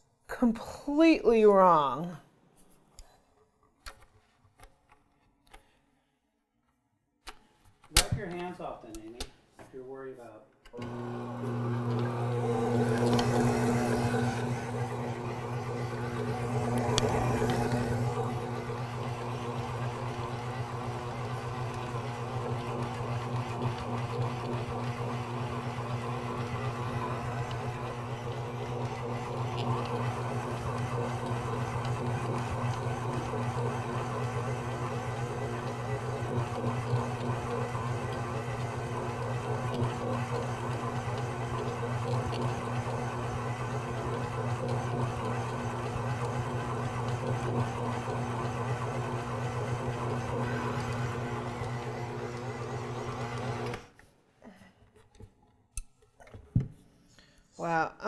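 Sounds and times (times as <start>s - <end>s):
mixer click: 10.7s - 53.8s
stand mixer motor humming: 10.8s - 53.8s.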